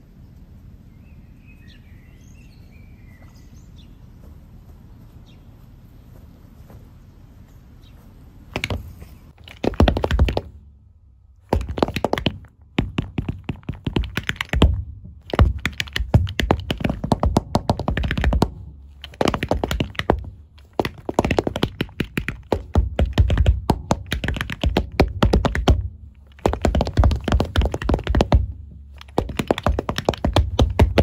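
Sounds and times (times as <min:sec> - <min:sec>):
tap shoes on hard floor: 0:08.6 - 0:08.8, 0:09.4 - 0:10.5, 0:11.5 - 0:31.0.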